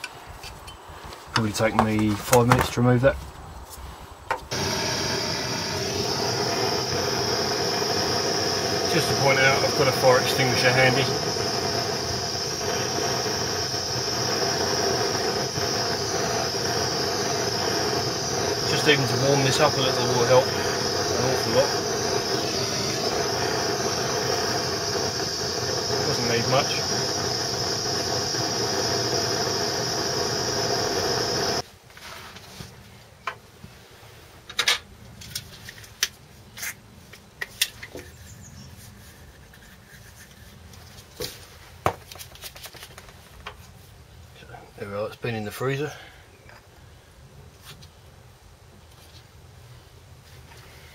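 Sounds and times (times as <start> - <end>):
blowtorch hissing: 4.5 - 31.6.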